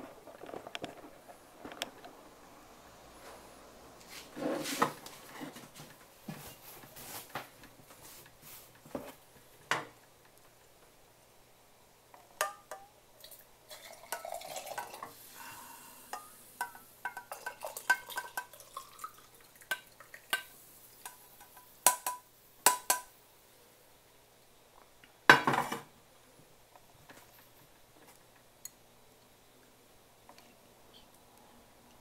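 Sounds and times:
liquid pouring into glass: 0:13.3 - 0:15.0, 0:17.3 - 0:20.3
pan set down on stove grate: 0:25.3 - 0:25.9.

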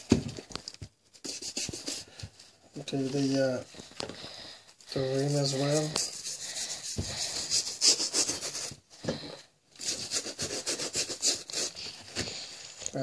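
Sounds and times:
toothbrush scrubbing rubber: 0:01.2 - 0:02.2, 0:04.9 - 0:08.8, 0:09.8 - 0:12.2.

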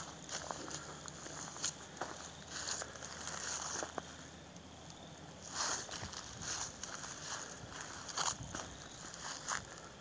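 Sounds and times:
footsteps in dry grass: 0:00.0 - 0:04.5, 0:05.4 - 0:10.0
steady hiss: 0:00.0 - 0:10.0.

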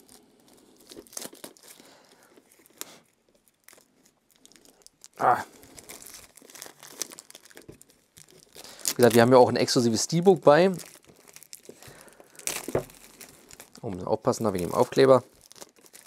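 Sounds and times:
plastic film crinkling: 0:00.0 - 0:16.0
brief vocal sound: 0:05.2 - 0:05.5.

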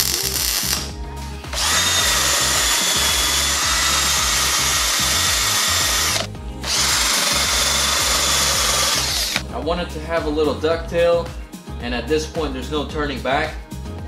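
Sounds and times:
cordless drill sanding steel: 0:00.0 - 0:00.9, 0:01.5 - 0:09.4.

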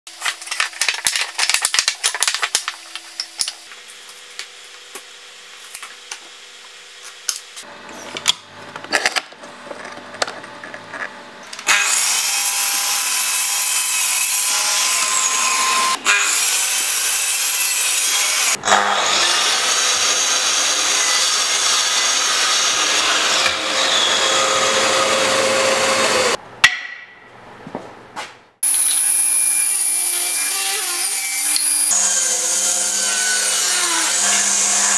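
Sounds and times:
table saw blade whine: 0:10.2 - 0:26.4, 0:28.6 - 0:34.9
mitre saw cutting wood: 0:11.6 - 0:26.4, 0:28.6 - 0:34.9.

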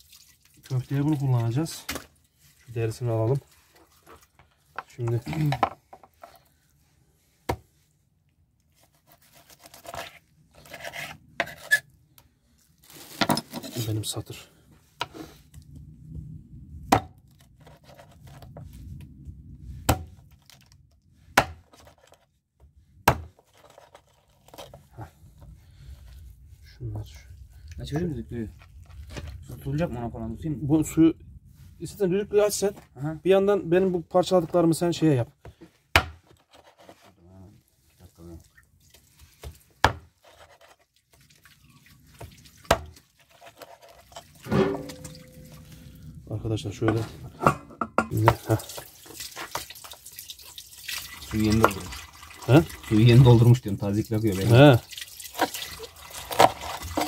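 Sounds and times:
cleaver chopping on board: 0:23.1 - 0:23.3, 0:36.0 - 0:36.2.

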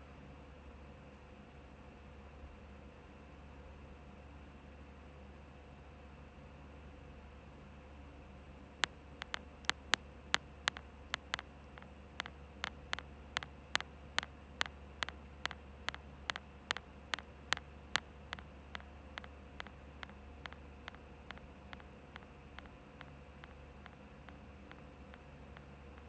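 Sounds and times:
sharp rhythmic clicks: 0:08.8 - 0:26.0.

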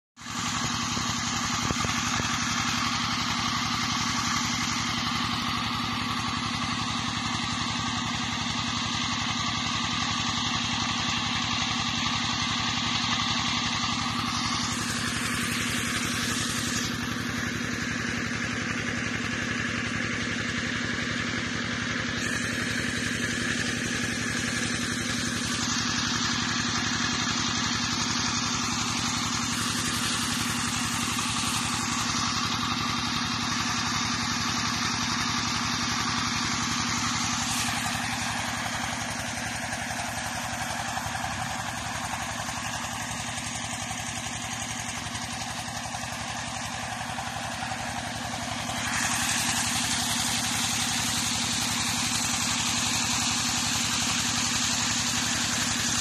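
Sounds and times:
water gushing from pipe: 0:00.2 - 0:17.6, 0:22.2 - 0:56.0
pump engine drone: 0:00.2 - 0:56.0.

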